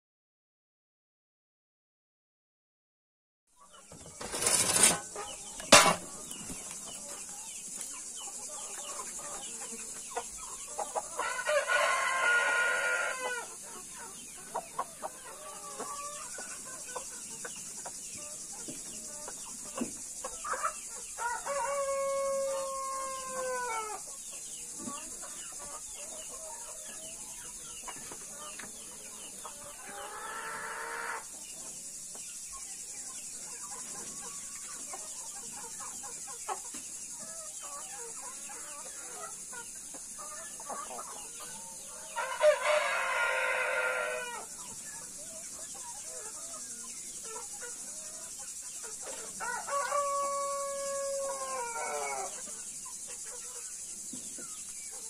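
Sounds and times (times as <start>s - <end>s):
chickens clucking: 3.6s - 55.0s
rooster crowing: 11.2s - 13.5s, 21.2s - 24.0s, 42.1s - 44.5s, 49.4s - 52.4s.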